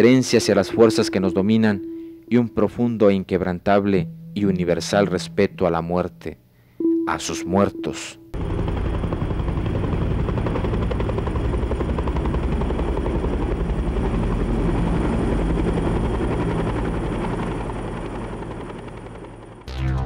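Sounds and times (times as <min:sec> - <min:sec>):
music: 0:00.0 - 0:02.7, 0:03.9 - 0:08.4, 0:19.7 - 0:20.0
helicopter rotor beating: 0:08.4 - 0:19.6.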